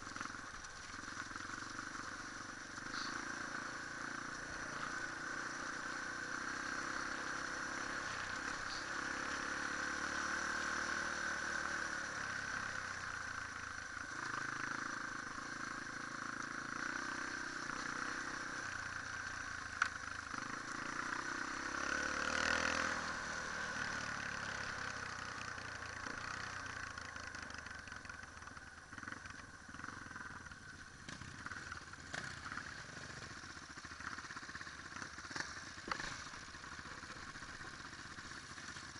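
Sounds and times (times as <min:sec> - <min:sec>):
motorcycle engine revving: 0:00.0 - 0:38.9.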